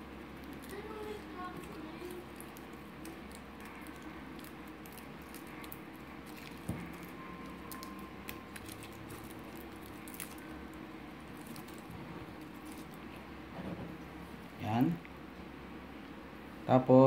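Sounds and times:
garlic skin crinkling: 0.2s - 13.3s.

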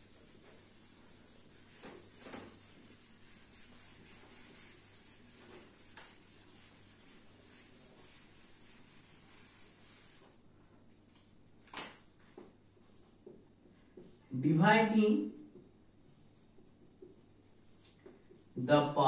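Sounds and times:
eraser wiping a whiteboard: 0.0s - 10.4s, 12.4s - 14.3s, 16.0s - 18.6s.

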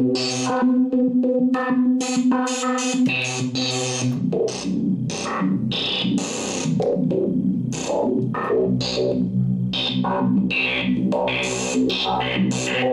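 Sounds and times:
synthesizer music: 0.0s - 12.9s.

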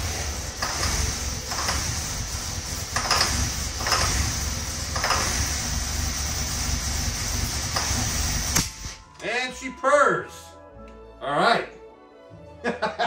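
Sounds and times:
car engine running: 0.0s - 8.9s.

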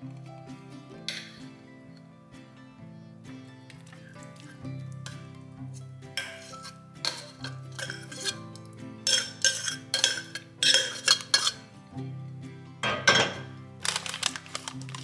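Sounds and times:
metal spoon scraping a pan: 3.7s - 11.8s.

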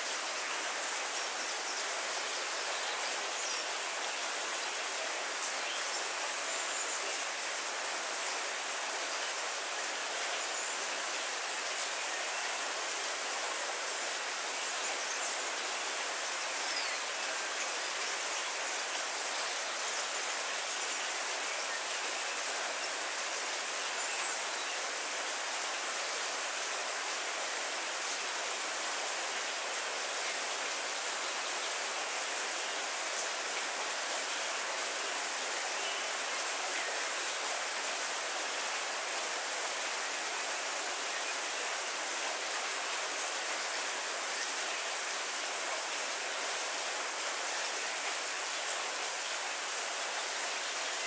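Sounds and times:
heavy rain on foliage: 0.0s - 51.0s.

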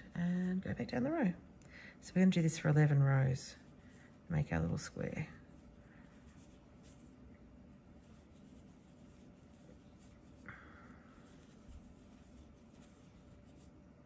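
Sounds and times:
yarn rustling on crochet hook: 2.7s - 14.0s
soft rasp of yarn loop: 3.4s - 7.2s, 7.8s - 13.9s.

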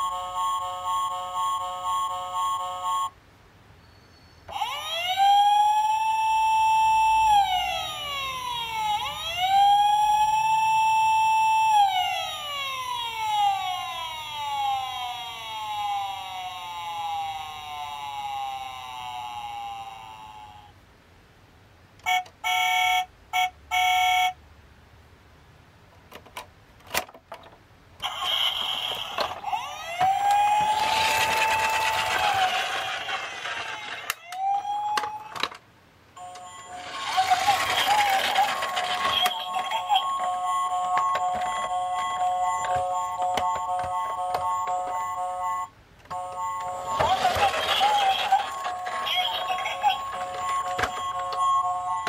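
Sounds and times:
toy police car horn beeps: 0.0s - 3.2s, 4.5s - 4.9s, 22.0s - 24.4s, 28.0s - 33.8s, 36.2s - 52.0s
wailing police siren: 4.5s - 20.7s, 28.0s - 35.5s, 36.2s - 52.0s.

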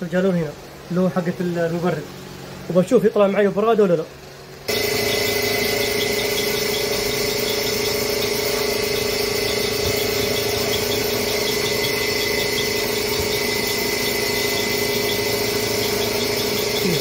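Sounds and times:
engine idling with high whine: 4.6s - 17.0s.

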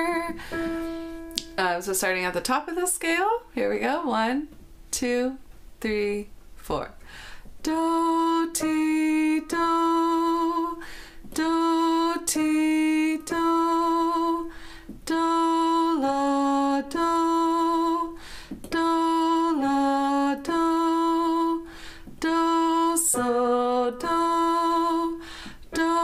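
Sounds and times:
woman singing vocal exercise: 0.0s - 0.6s, 7.6s - 26.0s.

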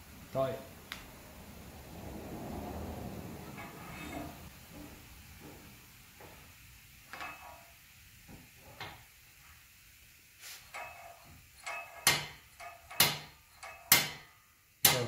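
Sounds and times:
metal bar tapping and scraping: 3.5s - 4.5s, 7.1s - 7.7s, 10.7s - 15.0s
metal clank: 3.5s - 4.5s, 7.1s - 7.8s, 10.7s - 15.0s.

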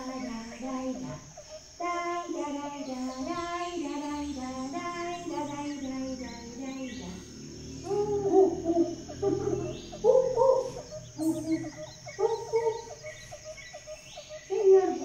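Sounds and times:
birds calling in held notes: 0.0s - 15.0s
high insect drone: 0.0s - 15.0s.

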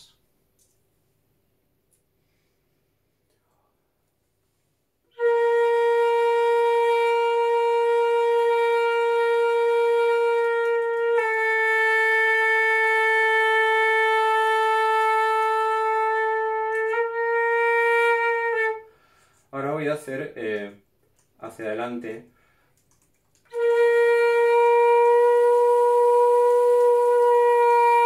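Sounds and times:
flute playing long tones: 5.1s - 19.0s, 23.5s - 28.0s.

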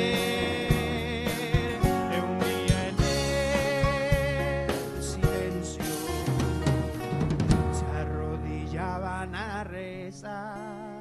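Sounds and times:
sharp drum hits: 0.0s - 8.0s
bass line: 0.0s - 10.4s
acoustic guitar: 0.0s - 11.0s.

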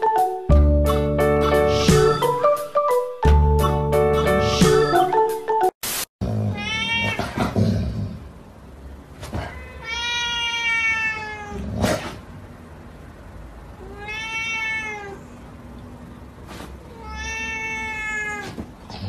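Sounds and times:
cat meowing: 6.5s - 7.4s, 9.4s - 11.6s, 13.8s - 15.4s, 16.8s - 18.7s.

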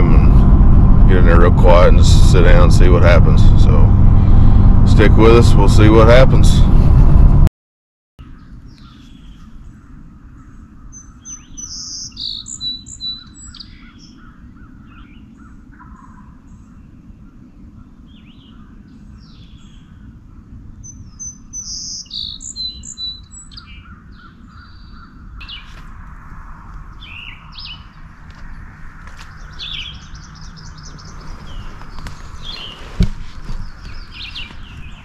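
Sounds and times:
songbirds chirping: 8.2s - 35.0s
distant turkey gobble: 15.4s - 16.4s.

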